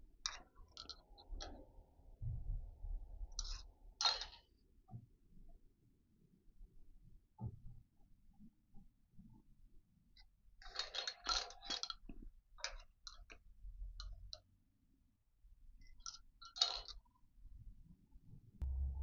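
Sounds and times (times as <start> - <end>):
steady low hum: 18.6 - 19.0.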